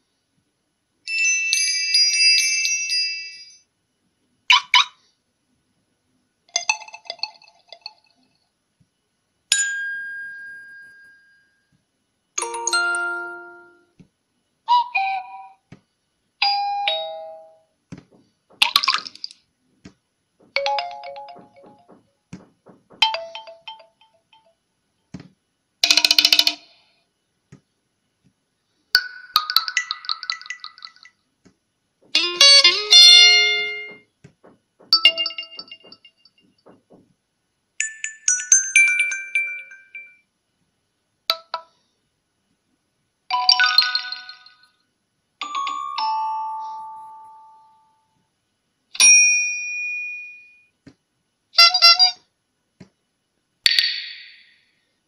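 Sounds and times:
phone notification chimes: 12.4 - 13.8.

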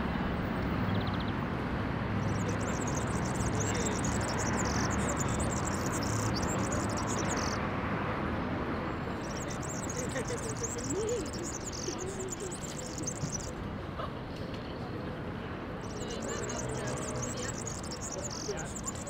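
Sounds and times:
rapid high-pitched chirping: 2.2 - 7.6, 9.1 - 13.6, 15.8 - 19.0.

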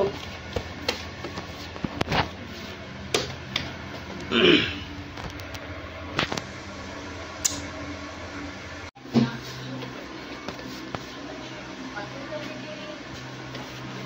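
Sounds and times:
ceiling fan humming: 0.0 - 14.0.

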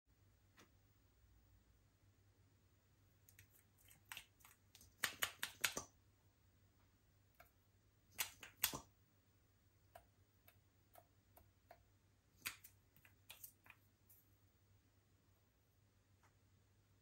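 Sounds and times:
hands handling small objects: 12.4 - 14.3.

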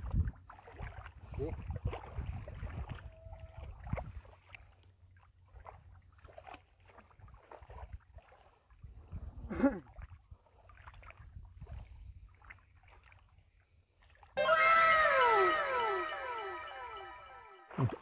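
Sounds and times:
wind rumble on microphone: 0.0 - 0.4, 1.2 - 4.2, 8.8 - 9.5
water sloshing and splashing: 0.0 - 8.8, 9.9 - 13.4
short voice-like cry: 14.4 - 17.9.

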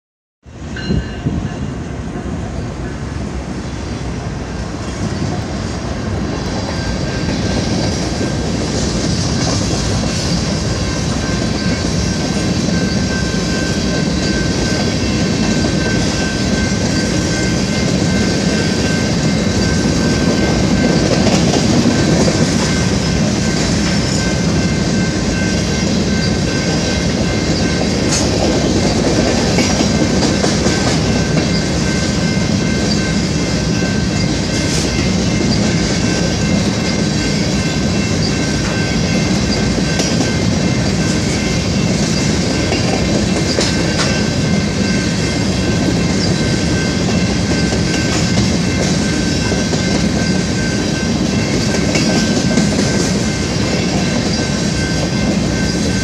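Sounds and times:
train wheels rumbling on rails: 0.4 - 56.0.

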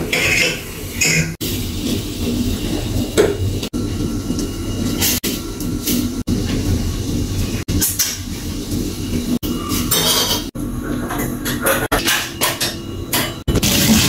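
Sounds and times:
pots and pans clattering: 0.0 - 1.4, 9.8 - 14.0.

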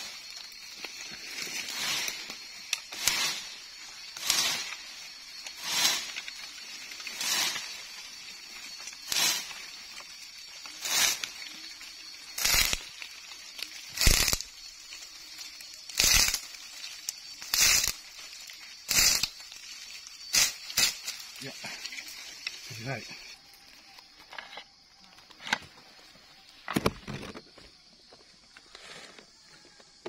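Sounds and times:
cane scraping through leaves: 0.0 - 23.4.

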